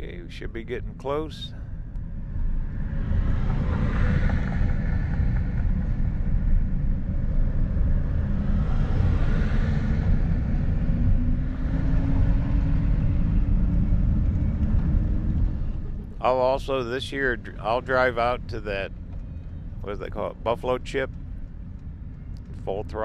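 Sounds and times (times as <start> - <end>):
low hum rising in pitch: 0.0 - 23.0
road and engine rumble in vehicle: 0.0 - 23.0.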